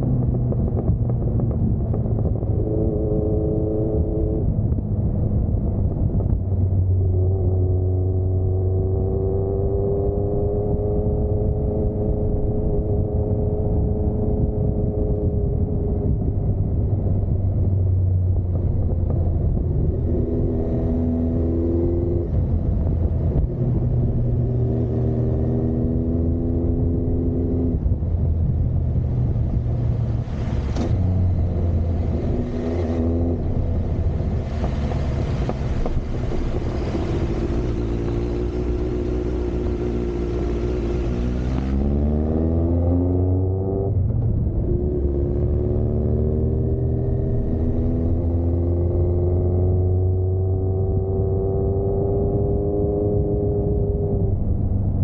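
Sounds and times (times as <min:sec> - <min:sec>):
muffled motorcycle engine revving: 0:00.0 - 0:55.0.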